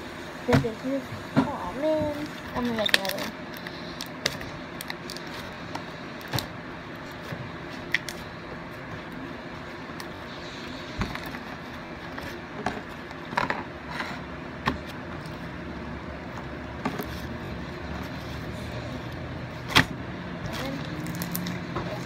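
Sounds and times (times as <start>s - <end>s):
steady background noise: 0.0s - 22.0s
slime squishing: 2.1s - 13.4s.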